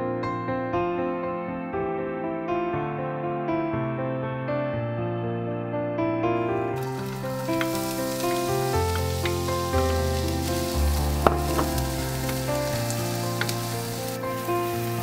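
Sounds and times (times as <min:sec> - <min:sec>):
soft background music: 0:06.4 - 0:15.0
onions sizzling in oil: 0:06.8 - 0:15.0.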